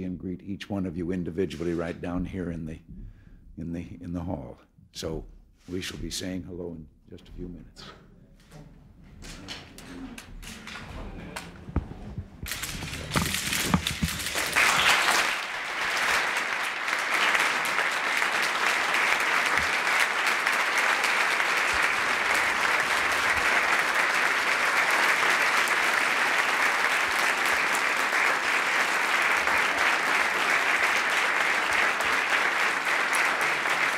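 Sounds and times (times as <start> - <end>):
audience applauding: 10.2 - 33.9.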